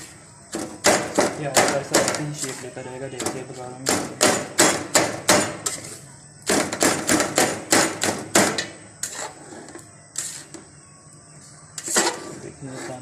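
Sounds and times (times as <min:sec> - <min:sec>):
metal spoon scraping steel pan: 0:09.0 - 0:10.6, 0:11.8 - 0:13.0.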